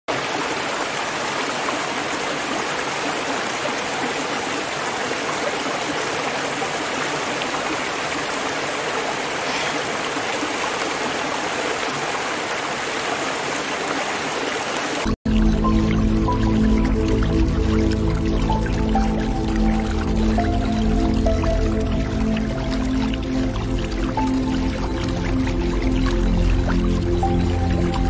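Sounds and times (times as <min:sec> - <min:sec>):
stream rushing over rocks: 0:00.1 - 0:15.2, 0:16.4 - 0:28.0.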